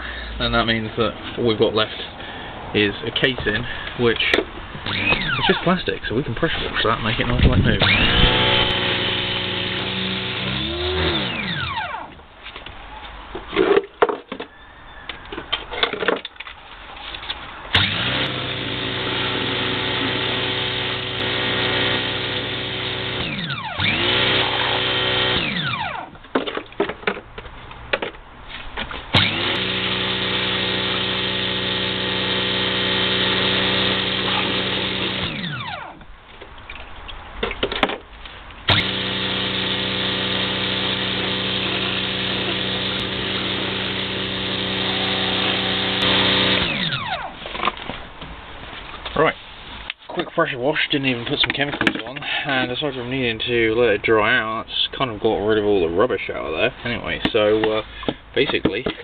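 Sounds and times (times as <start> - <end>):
pressure washer spraying: 38.7 - 46.6.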